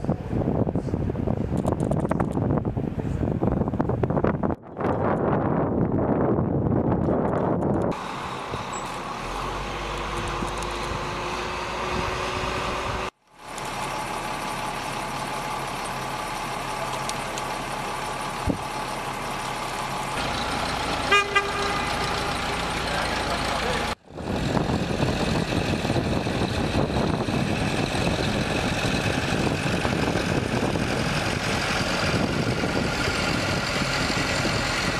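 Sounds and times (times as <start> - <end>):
wind buffeting microphone: 0.0 - 8.7, 10.0 - 13.1, 24.0 - 34.9
vehicle engines running: 6.7 - 34.9
short horn toots: 21.1 - 22.8.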